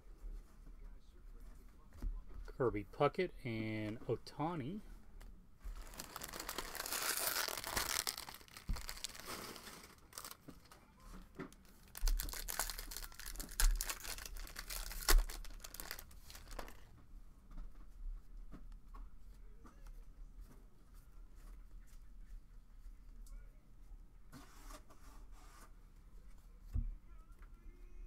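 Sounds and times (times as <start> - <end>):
wrapper crinkling and tearing: 5.7 - 10.8, 11.6 - 16.8.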